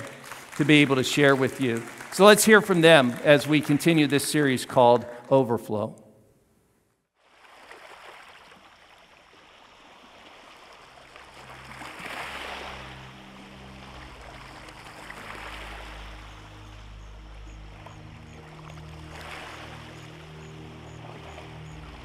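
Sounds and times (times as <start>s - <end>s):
low sustained music notes: 0.0s - 6.0s, 9.8s - 22.0s
running water: 7.5s - 22.0s.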